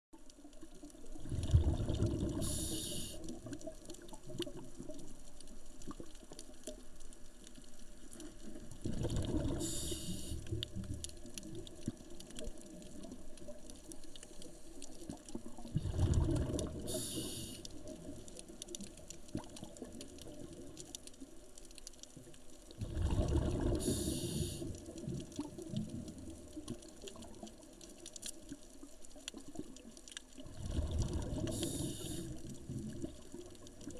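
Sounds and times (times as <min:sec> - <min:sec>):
faint crackling: 0:00.2 - 0:33.9
underwater exhaled bubbles: 0:00.2 - 0:33.9
regulator hiss: 0:02.4 - 0:03.2, 0:09.6 - 0:10.5, 0:16.8 - 0:17.7, 0:23.8 - 0:24.7, 0:31.5 - 0:32.4.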